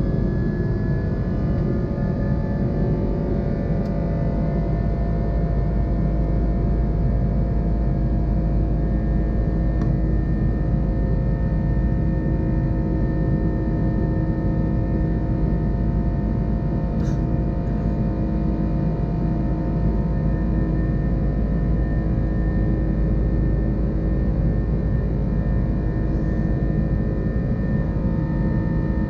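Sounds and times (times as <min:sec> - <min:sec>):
jet engine cabin drone: 0:00.0 - 0:29.0
steady humming tones: 0:00.0 - 0:29.0.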